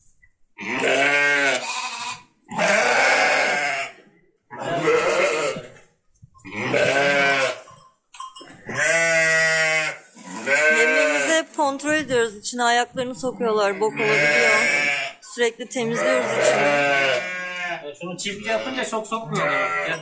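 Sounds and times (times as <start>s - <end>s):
sheep bleating: 0.6s - 5.8s, 6.4s - 7.7s, 8.6s - 11.5s, 13.5s - 20.0s.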